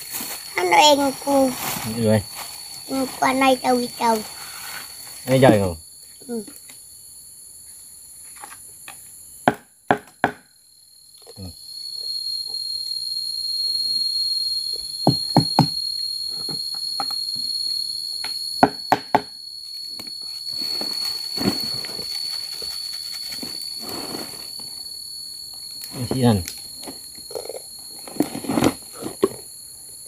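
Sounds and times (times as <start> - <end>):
insect whine: 0.0 - 30.0.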